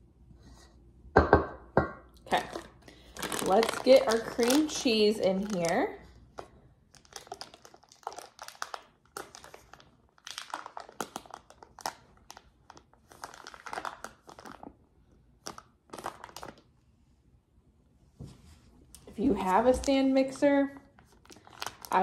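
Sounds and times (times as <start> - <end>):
foil wrapper crinkling: 2.3 - 14.8, 15.4 - 16.7, 19.3 - 22.0.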